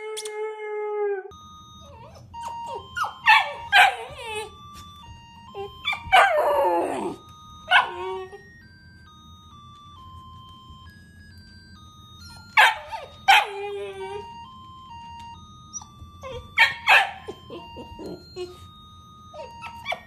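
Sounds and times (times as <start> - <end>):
plinking background melody: 0.0 - 20.0
dog barking and yelping: 2.0 - 4.5, 5.6 - 8.4, 12.5 - 14.3, 15.8 - 18.6, 19.4 - 20.0
husky howling: 5.9 - 8.4.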